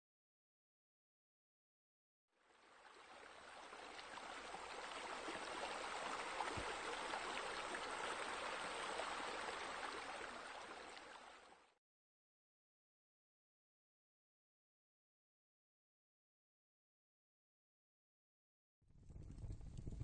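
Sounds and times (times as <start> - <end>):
running water stream: 2.4 - 11.8.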